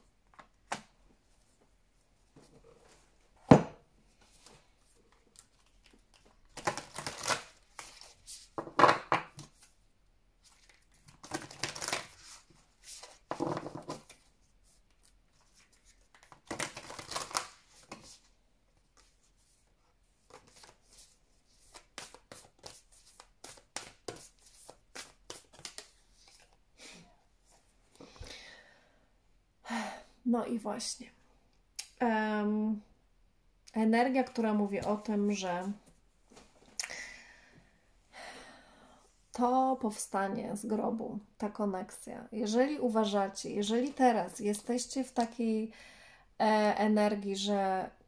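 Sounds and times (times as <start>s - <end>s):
cards shuffling: 5.3s - 8.6s, 10.4s - 18.3s, 20.2s - 26.6s.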